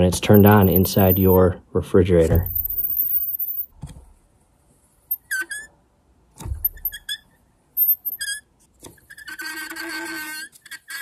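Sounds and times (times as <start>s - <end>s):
fan motor bearings squealing: 6.6s - 11.0s.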